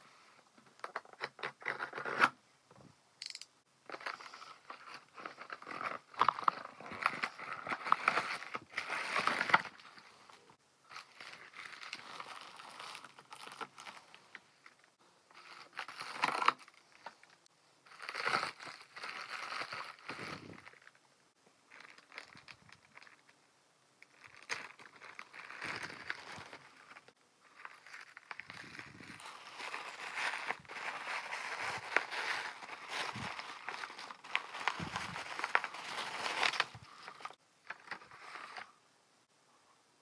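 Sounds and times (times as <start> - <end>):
plastic mailer tearing and crinkling: 3.9 - 10.0, 10.9 - 14.3, 15.3 - 17.2, 17.9 - 20.9, 21.7 - 23.3, 24.0 - 38.7
cardboard scraping and rustling: 28.3 - 37.2.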